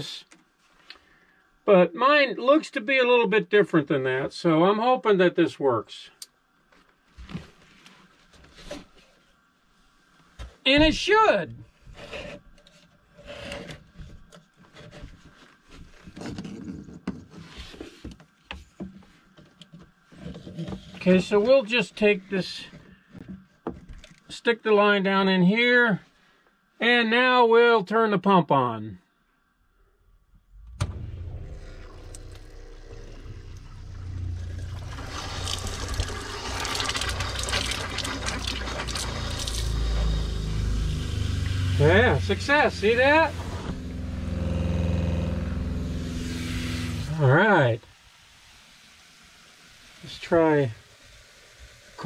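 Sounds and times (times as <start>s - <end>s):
water pump humming: 30.6s - 52.0s
liquid sputtering from faucet: 32.0s - 41.2s.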